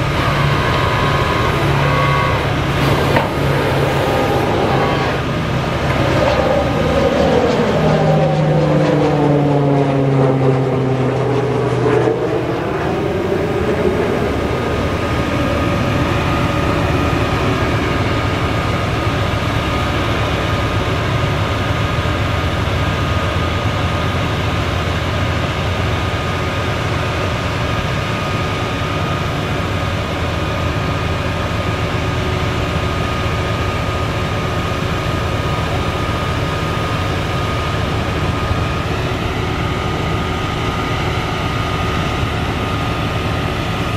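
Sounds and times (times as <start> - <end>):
thin high whine: 0.0 - 8.5
diesel engine running: 0.0 - 43.9
sliding hydraulic tones: 0.1 - 6.4.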